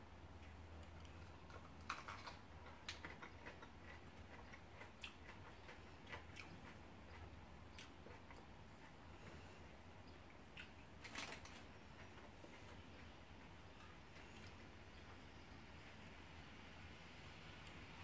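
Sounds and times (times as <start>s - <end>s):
crisp chewing clicks: 0.4s - 9.4s.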